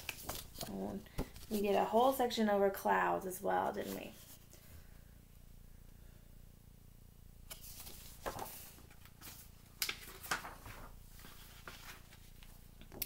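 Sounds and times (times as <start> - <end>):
book pages rustling: 0.0 - 2.2, 7.5 - 13.0
faint room hum: 0.0 - 13.0.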